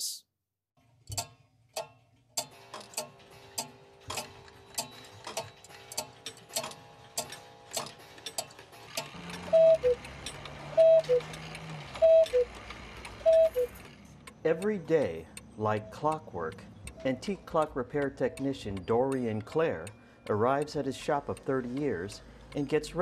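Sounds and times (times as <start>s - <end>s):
mechanical clocks ticking: 1.0s - 23.0s
cuckoo clock calling: 9.2s - 22.2s.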